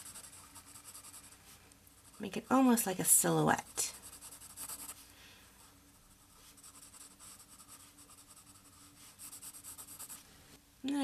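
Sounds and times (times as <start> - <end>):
pencil scratching on paper: 0.0 - 1.4, 2.0 - 2.6, 3.6 - 5.0, 6.0 - 10.3.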